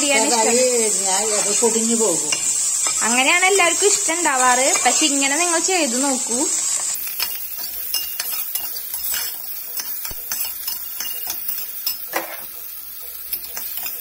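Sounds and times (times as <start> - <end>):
hot oil sizzling: 0.0 - 14.0
metal spatula scraping pan: 3.8 - 5.3, 6.7 - 14.0.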